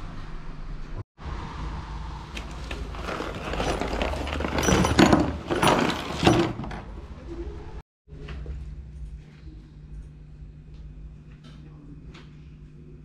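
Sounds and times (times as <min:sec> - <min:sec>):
metal bike parts clattering on table: 0:02.4 - 0:07.0.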